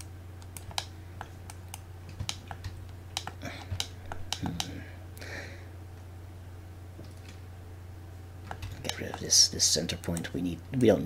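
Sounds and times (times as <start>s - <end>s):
mouse buttons clicking: 0.0s - 4.7s
low electrical hum: 0.0s - 11.0s.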